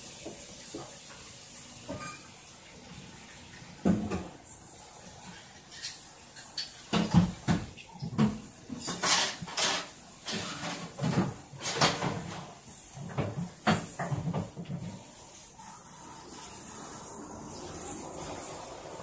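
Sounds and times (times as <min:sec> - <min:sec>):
dishes clattering: 0:01.9 - 0:02.3, 0:05.7 - 0:14.9.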